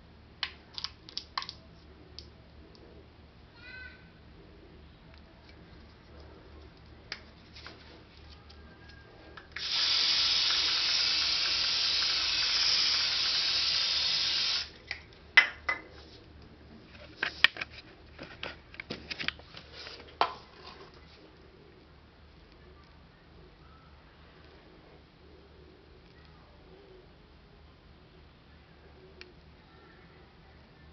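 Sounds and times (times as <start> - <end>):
aerosol spray hissing: 9.6 - 14.7.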